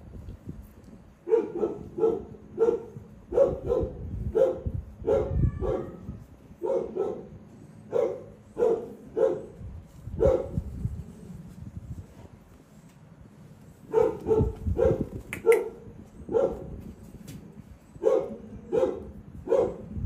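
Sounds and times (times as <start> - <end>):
dog barking: 1.2 - 6.0, 6.6 - 9.6, 10.2 - 10.6, 13.9 - 16.8, 18.0 - 20.0.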